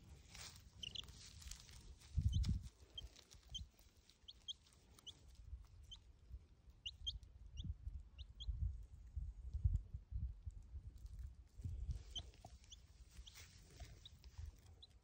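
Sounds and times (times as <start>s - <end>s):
chick peeping: 0.6s - 8.7s, 11.9s - 15.0s.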